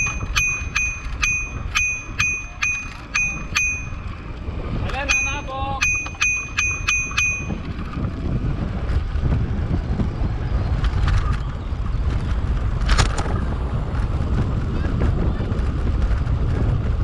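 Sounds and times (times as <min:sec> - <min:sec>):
bicycle bell ringing: 0:00.0 - 0:08.2
riding and wind rumble: 0:00.0 - 0:17.0.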